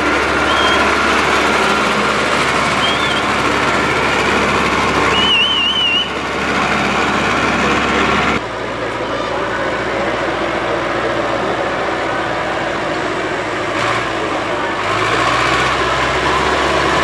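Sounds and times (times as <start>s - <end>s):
tractor engines running: 0.0s - 17.0s
warbling high whistle: 0.4s - 0.9s, 2.8s - 3.3s, 5.1s - 6.2s.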